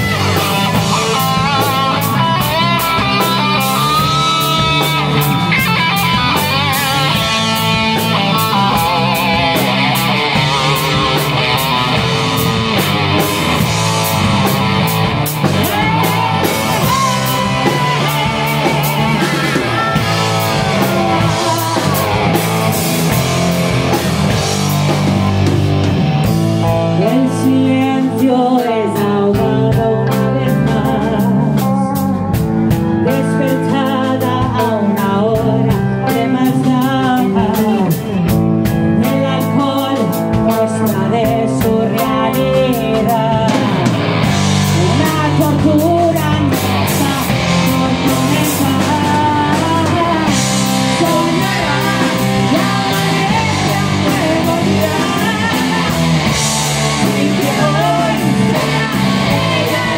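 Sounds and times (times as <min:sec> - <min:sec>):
live rock band playing: 0:00.0 - 0:59.9
woman singing into microphone: 0:15.5 - 0:22.8, 0:26.9 - 0:32.4, 0:33.0 - 0:38.2, 0:38.9 - 0:44.0, 0:44.7 - 0:59.9.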